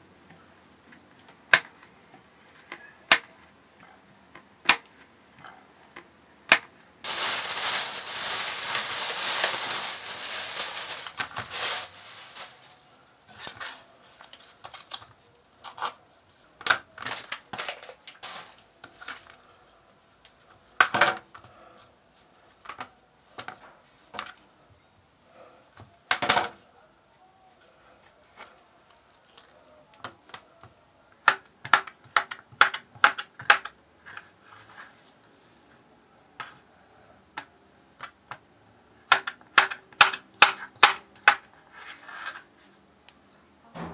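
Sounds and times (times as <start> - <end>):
loud rustling: 7.0 - 13.7.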